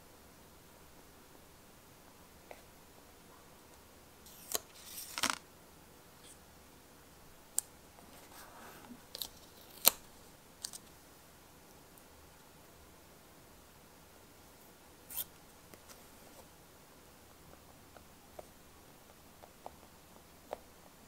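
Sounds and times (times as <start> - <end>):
paper and sticker rustling: 4.3 - 5.4.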